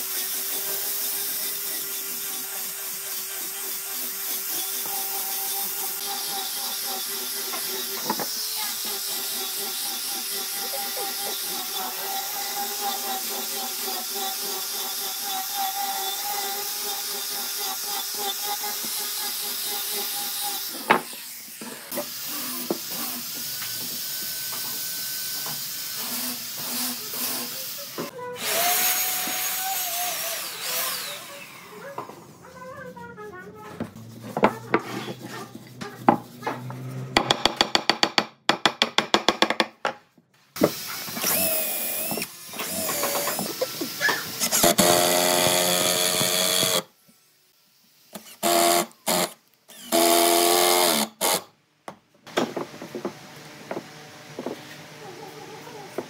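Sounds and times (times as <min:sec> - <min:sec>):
power tool whining: 0:00.0 - 0:32.1, 0:40.6 - 0:46.9, 0:48.2 - 0:51.4.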